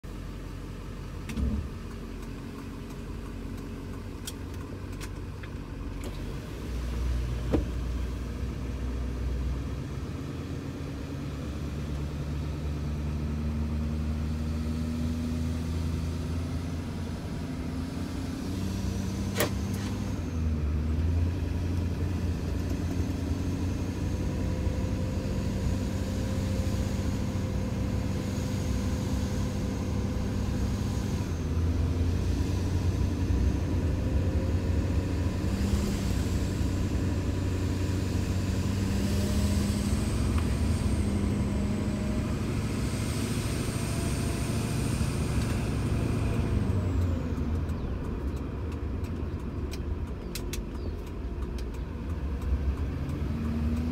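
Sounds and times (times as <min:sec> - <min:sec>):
diesel engine drone in cab: 0:00.0 - 0:53.9
sharp clicks: 0:47.0 - 0:53.9.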